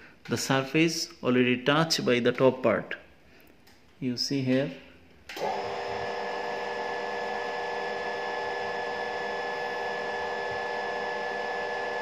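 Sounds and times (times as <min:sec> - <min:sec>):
machine drive whine: 0:05.3 - 0:12.0.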